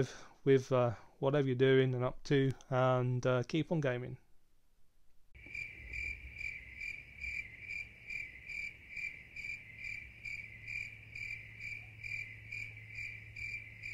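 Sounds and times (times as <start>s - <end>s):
cricket-like chirping: 5.4s - 13.9s.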